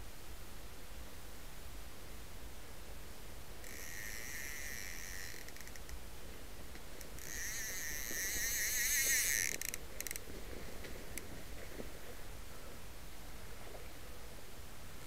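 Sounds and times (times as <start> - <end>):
fly reel ratchet buzzing: 3.6 - 6.0, 7.0 - 10.2
fly reel single clicks: 3.6 - 6.0, 6.7 - 10.3.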